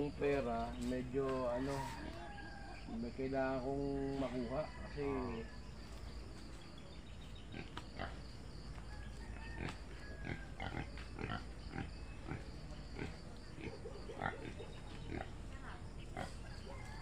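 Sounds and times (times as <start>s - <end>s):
pigs squealing and grunting: 9.3s - 15.4s.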